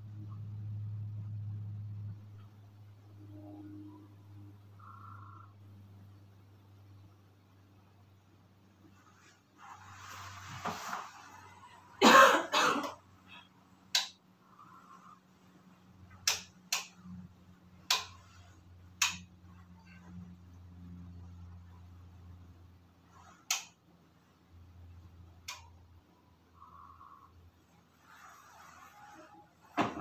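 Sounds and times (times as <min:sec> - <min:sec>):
soft rustle: 0:08.8 - 0:12.0, 0:27.6 - 0:29.8
person coughing: 0:12.0 - 0:13.0.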